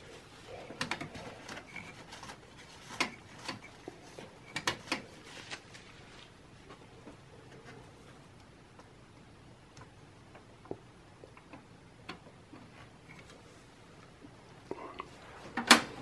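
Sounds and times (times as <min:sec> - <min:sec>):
glove rustling: 0:05.1 - 0:06.4.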